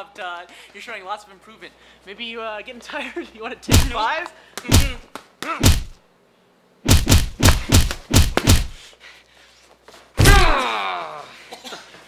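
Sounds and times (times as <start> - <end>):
loud slam with ringing tail: 3.7 - 4.0, 4.7 - 5.0, 5.6 - 6.0, 6.9 - 8.8
boxing gloves hitting pads: 3.7 - 6.0, 6.9 - 8.8.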